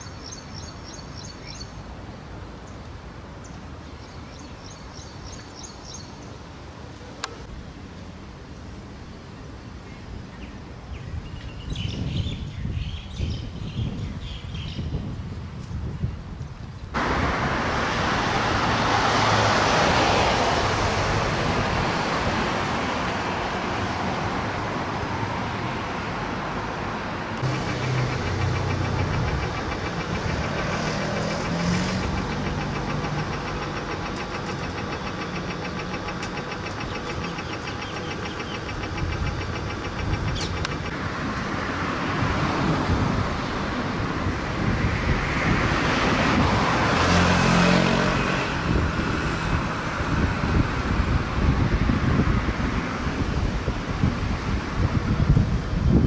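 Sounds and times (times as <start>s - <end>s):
cars passing: 17.0s - 56.0s
vehicle engine running: 27.3s - 41.2s.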